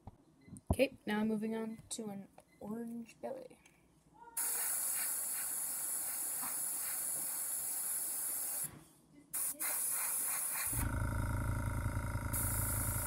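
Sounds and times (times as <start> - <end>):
airbrush spraying hiss: 4.4 - 8.7, 9.4 - 10.8.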